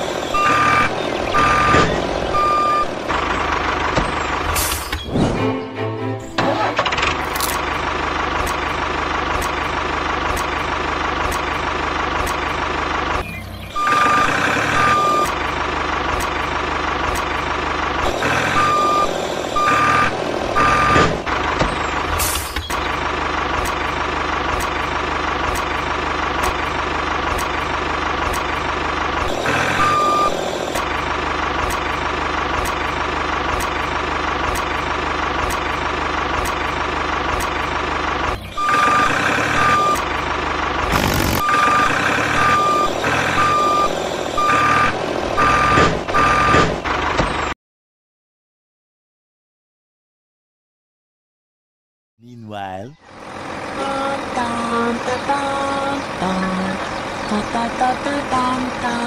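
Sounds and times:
heavy vehicle engine running: 0:00.0 - 0:47.6, 0:52.6 - 0:59.0
reversing alarm beeping: 0:00.3 - 0:03.0, 0:13.3 - 0:15.4, 0:18.5 - 0:21.1, 0:29.5 - 0:30.4, 0:38.4 - 0:40.0, 0:41.4 - 0:46.6.

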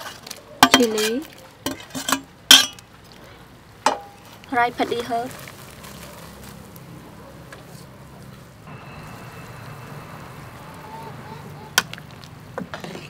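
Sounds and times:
soup boiling in metal pot: 0:08.4 - 0:13.0.

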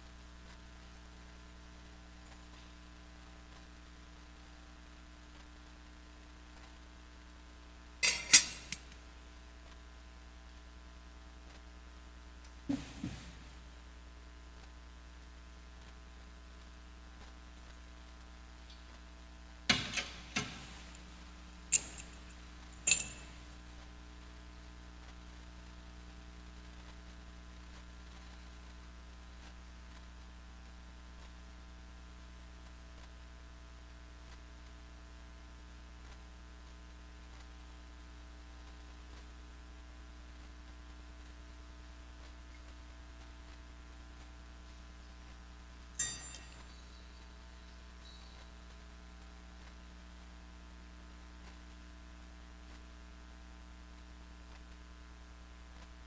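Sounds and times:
electrical hum: 0:00.0 - 0:34.4, 0:36.0 - 0:56.0
metallic knocks and clinks: 0:08.0 - 0:08.8, 0:21.7 - 0:23.4, 0:46.0 - 0:47.1.

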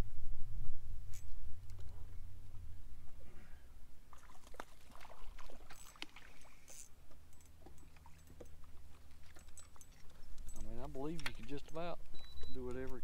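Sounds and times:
low steady hum: 0:00.0 - 0:13.0
water lapping against boat hull: 0:04.1 - 0:11.6.

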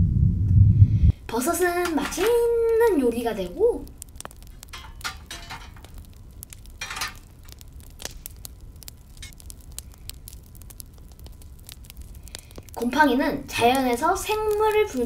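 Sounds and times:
mushrooms sizzling in a pan: 0:01.2 - 0:15.0
metal spoon scraping a pan: 0:04.6 - 0:05.9, 0:06.8 - 0:07.2.

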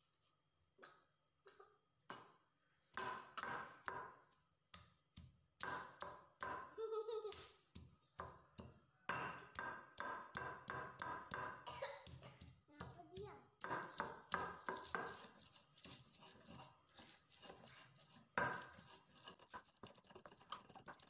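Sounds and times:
stone pestle pounding in mortar: 0:02.9 - 0:06.8, 0:07.7 - 0:13.0, 0:13.6 - 0:21.0.

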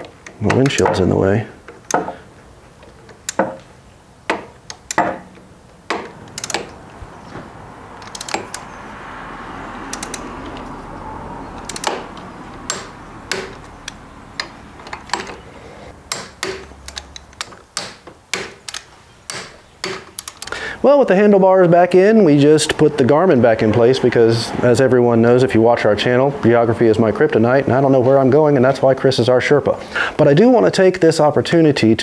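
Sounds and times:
torque wrench clicking: 0:03.1 - 0:03.6, 0:04.3 - 0:06.8, 0:08.0 - 0:08.8, 0:09.9 - 0:10.7, 0:11.6 - 0:15.4, 0:16.0 - 0:20.6.

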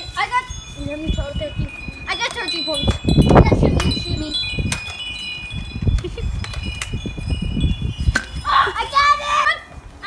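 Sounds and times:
metal wind chimes ringing: 0:00.0 - 0:09.8
child calling: 0:08.4 - 0:09.8.

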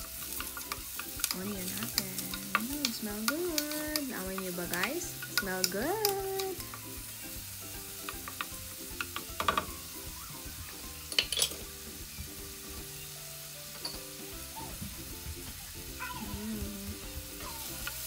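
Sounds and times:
light background music: 0:00.0 - 0:18.0
onion sizzling in hot oil: 0:00.0 - 0:18.0
wooden spoon knocking pan: 0:08.0 - 0:09.9.

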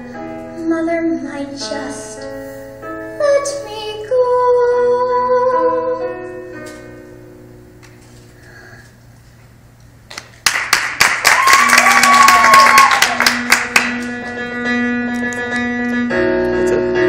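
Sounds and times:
audience applause: 0:10.4 - 0:14.1
audience cheering: 0:11.2 - 0:13.6.

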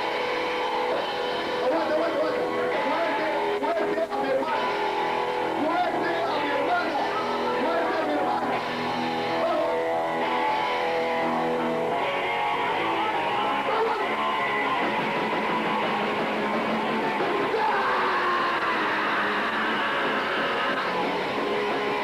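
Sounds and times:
distorted electric guitar chords: 0:00.0 - 0:22.0
punk band playing loud: 0:00.0 - 0:22.0.

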